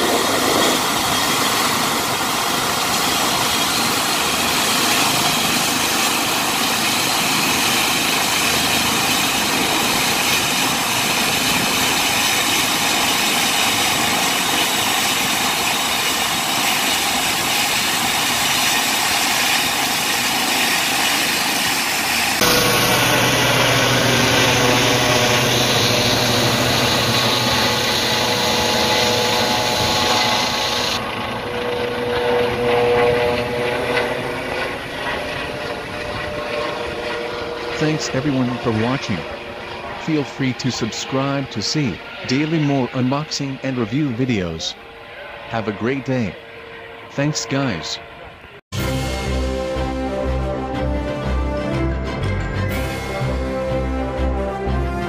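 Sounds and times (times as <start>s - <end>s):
helicopter engine and rotor: 0.0s - 55.0s.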